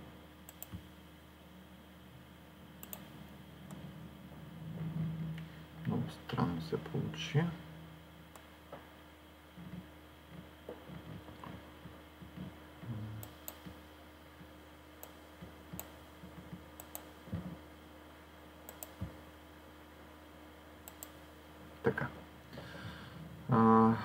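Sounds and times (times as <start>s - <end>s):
low electrical hum: 0.0s - 24.0s
computer mouse clicking: 0.4s - 0.9s, 2.8s - 3.1s, 13.2s - 13.8s, 15.0s - 16.0s, 16.8s - 17.1s, 18.7s - 19.2s, 20.8s - 21.2s.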